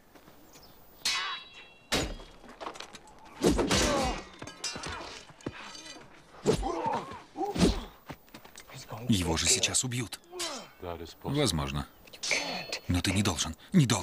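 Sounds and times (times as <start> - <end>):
men shouting and grunting: 3.4 - 8.0, 9.1 - 11.1.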